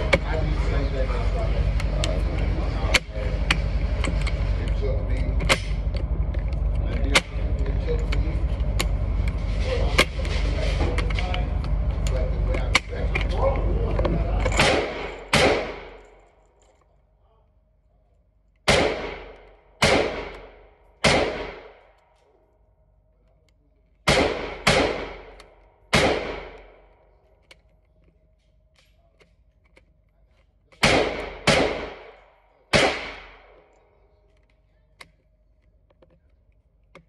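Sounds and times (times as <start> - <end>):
gunshots echoing indoors: 14.5 - 16.2, 18.6 - 22.0, 24.0 - 27.1, 30.8 - 33.9.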